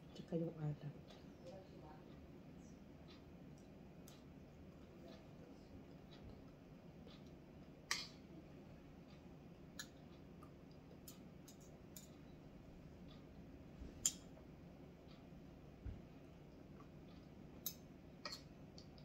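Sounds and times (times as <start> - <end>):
cutlery clicks and taps: 17.6 - 19.0.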